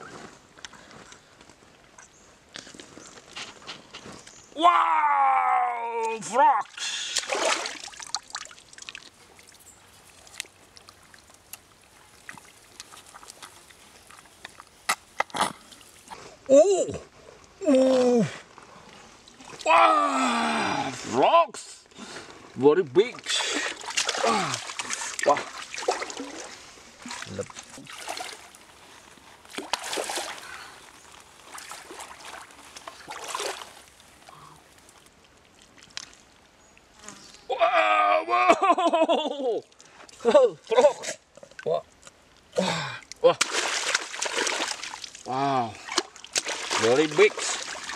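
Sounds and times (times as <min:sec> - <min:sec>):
water sloshing and splashing: 0:07.1 - 0:14.8, 0:18.5 - 0:19.7, 0:23.1 - 0:36.4, 0:43.4 - 0:47.9.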